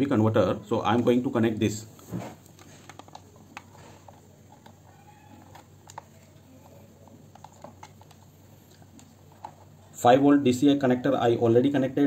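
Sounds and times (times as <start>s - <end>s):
plastic connectors clicking: 2.4s - 9.6s.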